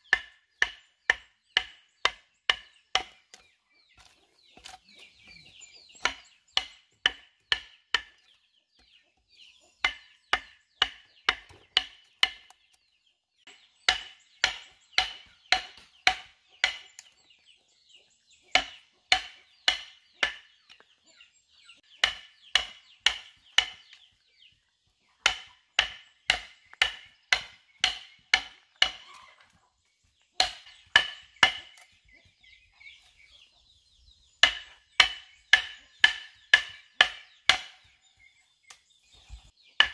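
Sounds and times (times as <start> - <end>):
chisel bar striking wood: 0.1 - 3.4, 6.0 - 8.3, 9.8 - 12.6, 13.9 - 17.0, 18.5 - 20.6, 22.0 - 24.0, 25.2 - 29.1, 30.4 - 31.9, 34.4 - 37.9.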